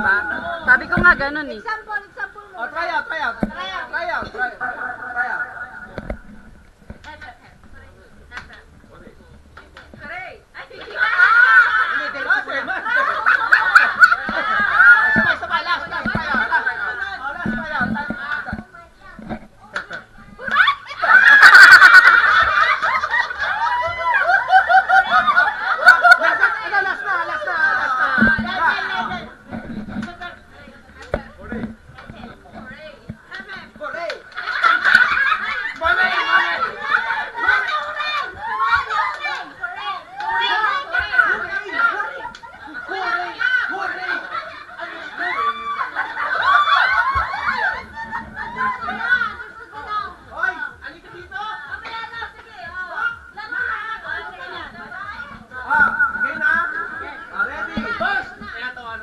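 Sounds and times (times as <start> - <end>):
people laughing loudly: 10.8 - 18.6, 20.4 - 29.2, 34.0 - 50.1.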